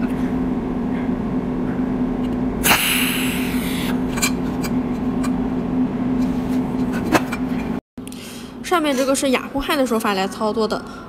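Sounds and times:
hiss: 2.6s - 4.0s.

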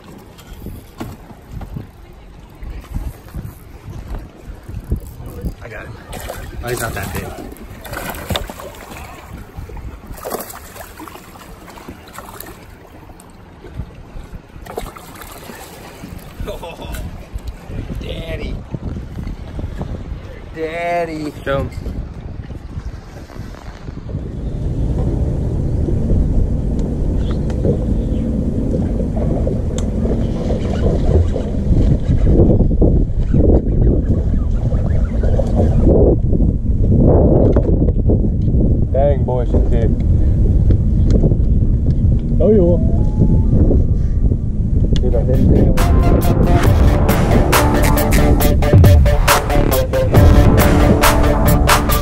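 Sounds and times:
water sloshing against hull: 0.0s - 20.5s, 21.2s - 38.4s
wind buffeting microphone: 0.0s - 52.0s.

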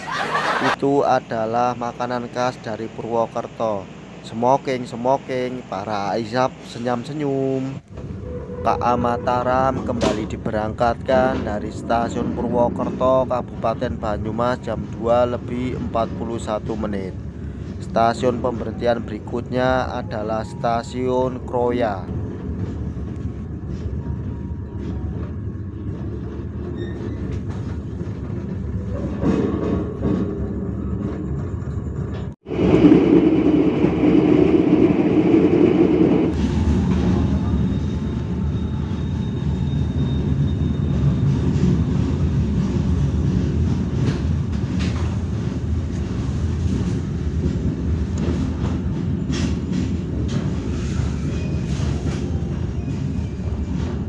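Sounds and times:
train rumble inside coach: 0.0s - 54.0s.

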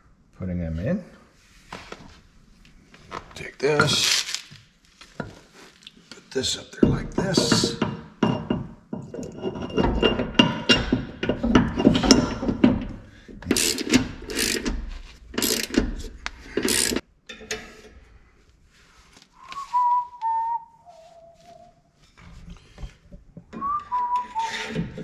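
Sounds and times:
wrench ratcheting: 13.4s - 17.0s
man whistling: 19.4s - 21.9s, 23.6s - 24.6s.

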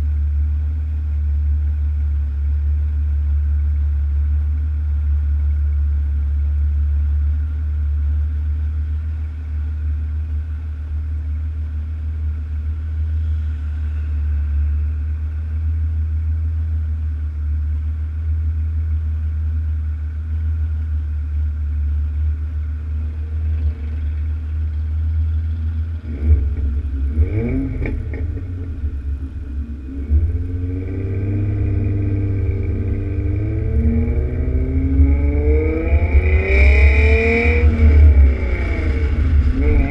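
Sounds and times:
car engine idling: 0.0s - 39.9s
car engine revving: 22.0s - 39.9s.

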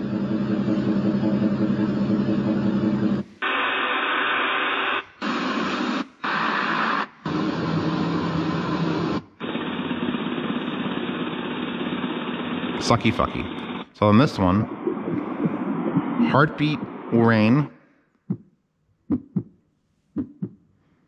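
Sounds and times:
pulsing machine drone: 0.0s - 3.3s, 7.3s - 17.2s
hiss-like noise tracks: 12.8s - 17.7s.

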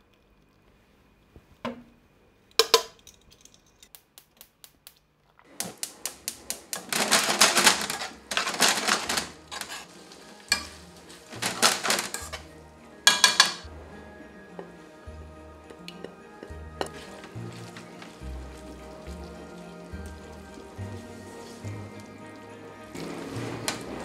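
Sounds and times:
food sizzling: 5.6s - 24.0s
metal tongs clacking in pan: 6.2s - 12.5s, 13.1s - 13.7s, 15.7s - 22.5s.

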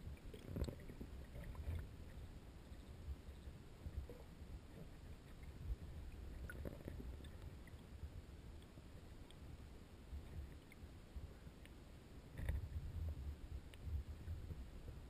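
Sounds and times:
muffled underwater river rumble: 0.0s - 15.0s
faint ticks: 0.1s - 9.5s, 10.1s - 15.0s.

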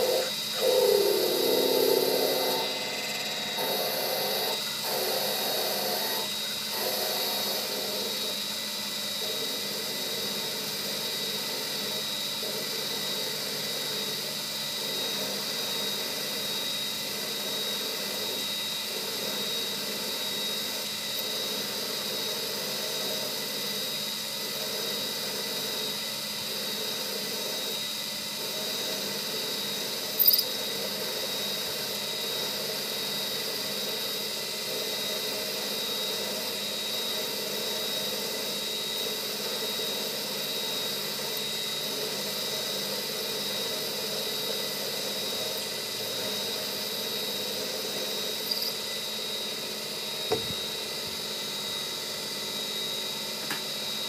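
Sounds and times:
drill boring high-pitched whine: 0.0s - 54.0s
metal lathe running: 0.0s - 54.0s.

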